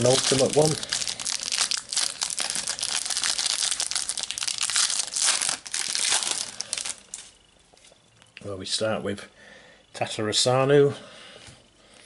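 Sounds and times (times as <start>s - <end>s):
card packet wrapper tearing: 0.0s - 7.3s.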